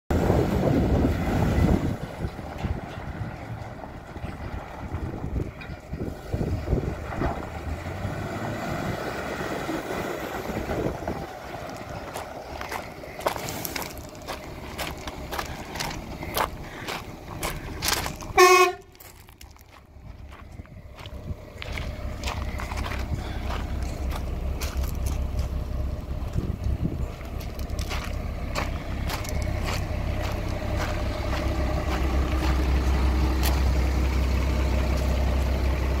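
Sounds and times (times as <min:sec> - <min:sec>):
diesel truck engine rumbling: 0:00.1 - 0:36.0
tyres rolling over gravel: 0:00.2 - 0:36.0.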